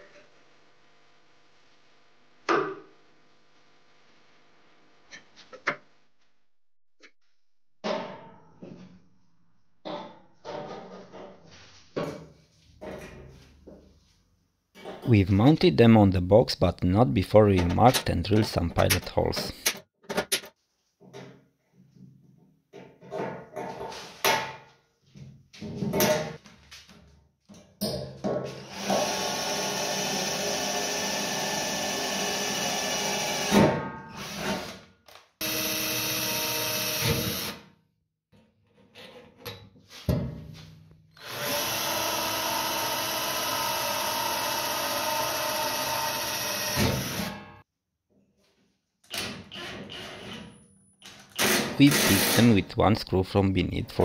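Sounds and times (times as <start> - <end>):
power drill into sheet metal: 28.6 - 34.8, 35.4 - 37.6, 41.2 - 47.6, 51.3 - 52.6.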